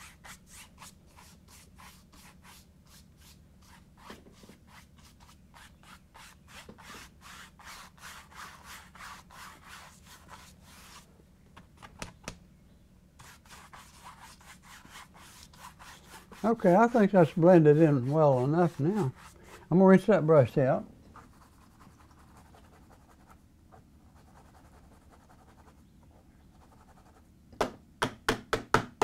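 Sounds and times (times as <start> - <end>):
paintbrush scrubbing on canvas: 0.0 - 11.1, 13.2 - 20.1.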